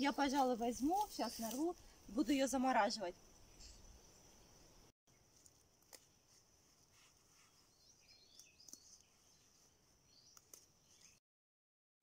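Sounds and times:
soft bird chirps: 0:03.3 - 0:05.4, 0:06.9 - 0:11.2.

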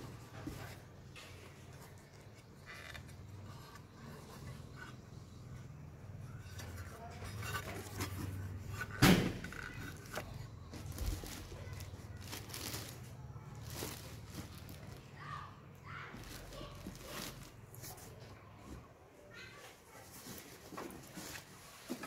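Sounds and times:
plastic wrapping rustling: 0:06.5 - 0:18.3, 0:19.8 - 0:22.0.

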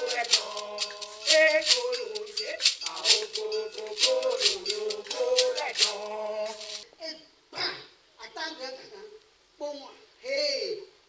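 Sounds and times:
gourd rattle shaken rhythmically: 0:00.0 - 0:06.8
person singing: 0:00.0 - 0:06.8.

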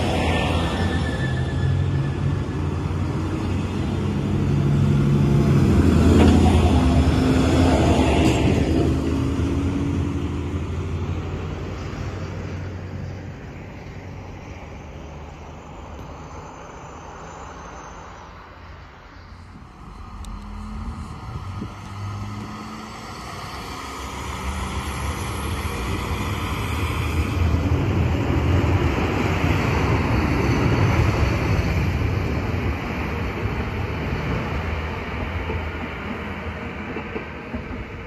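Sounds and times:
diesel railcar engine drone: 0:00.0 - 0:38.0
diesel train approaching: 0:00.0 - 0:38.0.

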